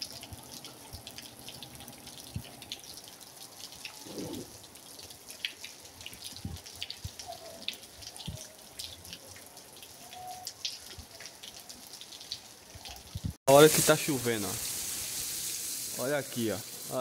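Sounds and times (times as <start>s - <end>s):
rain hiss: 0.0s - 11.2s, 13.4s - 17.0s
drops and drips ticking: 0.0s - 16.0s.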